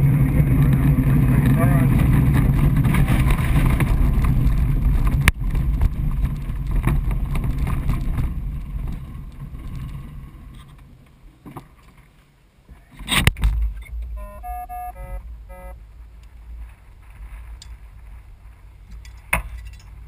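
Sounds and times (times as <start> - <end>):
glider wheel rumbling and rattling: 0.0 - 12.2.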